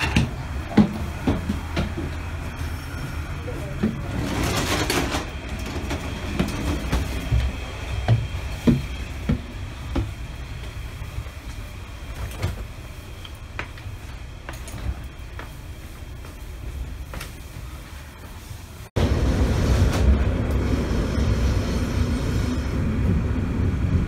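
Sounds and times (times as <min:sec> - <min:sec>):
train clunks and knocks: 0:00.0 - 0:15.6
train running low rumble: 0:00.0 - 0:24.0.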